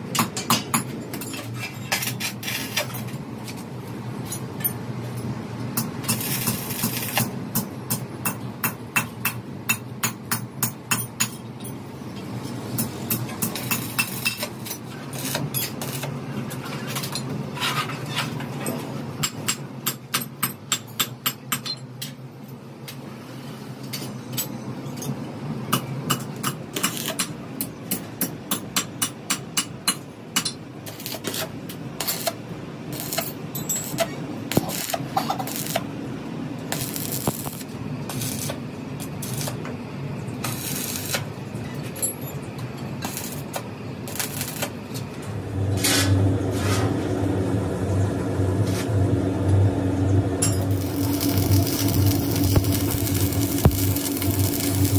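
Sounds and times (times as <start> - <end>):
welding arc crackling: 5.9 - 7.4, 13.0 - 16.2, 26.8 - 27.3, 30.8 - 39.6, 40.3 - 41.4, 43.0 - 45.0, 50.4 - 54.9
low hum: 45.2 - 54.9.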